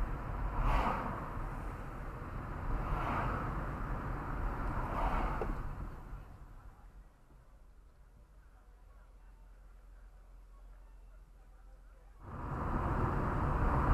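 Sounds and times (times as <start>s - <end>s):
passing cars whooshing: 0.0s - 6.2s, 12.2s - 13.9s.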